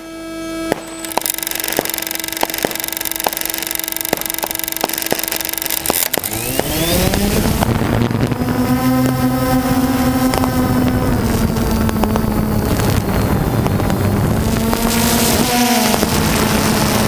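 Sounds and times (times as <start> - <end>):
drone motors whining: 0.0 - 17.0
steady tone: 0.0 - 17.0
sharp crackling ticks: 0.7 - 7.7, 10.2 - 16.5.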